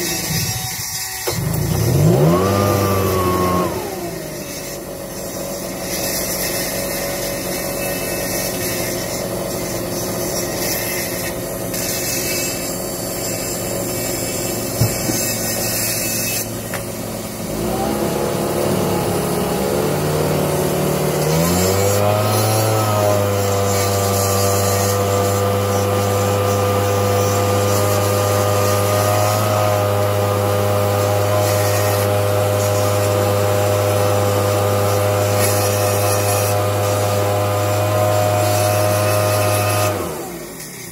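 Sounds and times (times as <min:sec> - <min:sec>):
motor whine: 0:00.0 - 0:06.7, 0:10.0 - 0:24.2
electric chain sharpener motor: 0:00.0 - 0:40.9.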